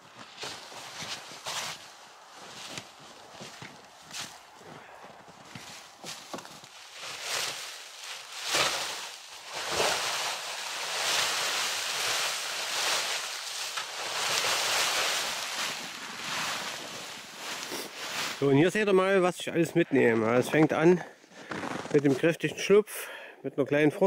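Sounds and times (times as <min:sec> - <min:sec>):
snow brush swishing and scraping: 0:00.3 - 0:04.5, 0:05.4 - 0:18.8.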